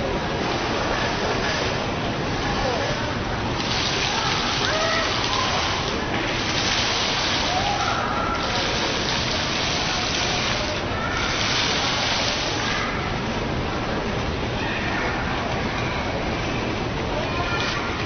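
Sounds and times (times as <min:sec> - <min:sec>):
falling water splashing: 0:00.3 - 0:13.4.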